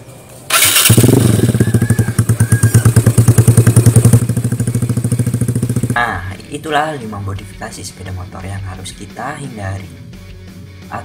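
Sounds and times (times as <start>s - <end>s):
scooter engine pulsing: 0.5s - 6.3s.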